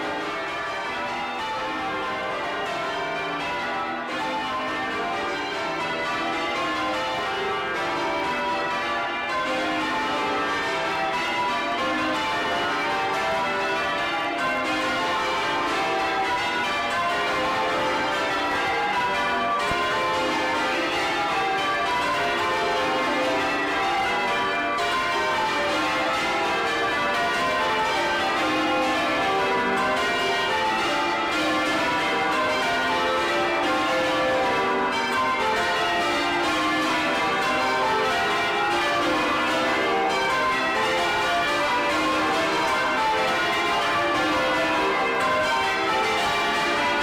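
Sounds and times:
church bells change ringing: 0:00.0 - 0:47.0.

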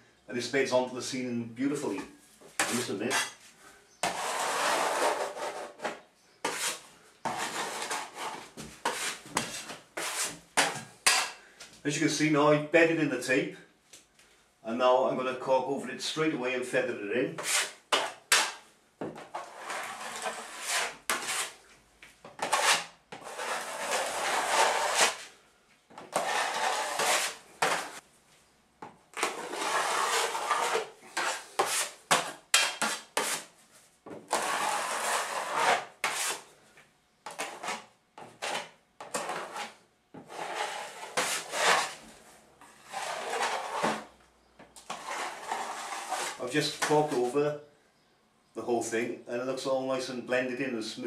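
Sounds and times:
blade scraping plasterboard ceiling: 0:02.6 - 0:03.4, 0:04.0 - 0:11.4, 0:17.4 - 0:18.6, 0:19.2 - 0:21.6, 0:22.3 - 0:25.4, 0:26.0 - 0:28.0, 0:29.2 - 0:33.5, 0:34.2 - 0:36.5, 0:37.3 - 0:44.2, 0:44.8 - 0:47.4.

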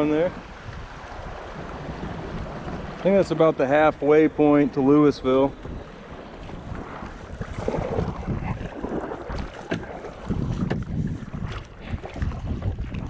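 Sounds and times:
kayak paddle strokes in water: 0:00.0 - 0:13.0
wind noise on microphone: 0:00.0 - 0:13.0
water splashes and drips: 0:06.4 - 0:13.0.

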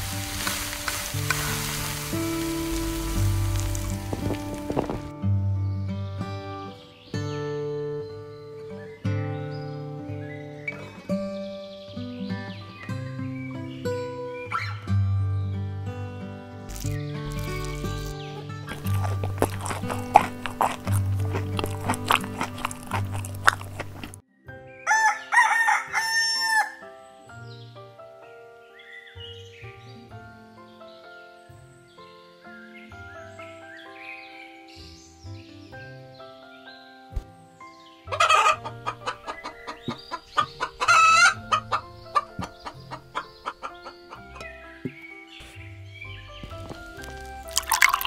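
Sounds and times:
soft sustained music: 0:00.0 - 0:48.0
rooster crowing: 0:24.9 - 0:26.8.

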